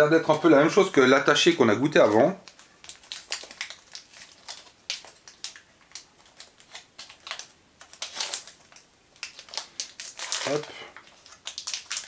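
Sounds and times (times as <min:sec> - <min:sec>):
snack wrapper crinkling: 0:02.4 - 0:12.0.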